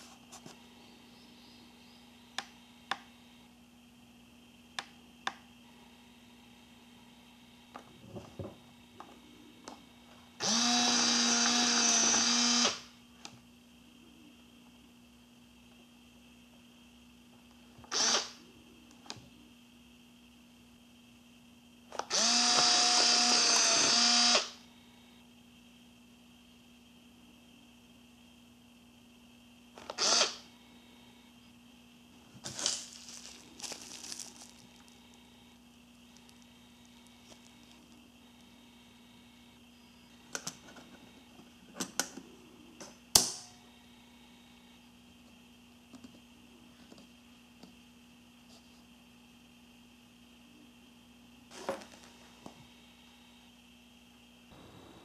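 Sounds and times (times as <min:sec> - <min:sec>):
camera lens motor whine: 0:10.4 - 0:12.9, 0:17.8 - 0:18.4, 0:22.0 - 0:24.7, 0:29.8 - 0:30.5
bubble wrap crinkling: 0:32.3 - 0:35.2
plastic packaging rustle: 0:32.4 - 0:35.1.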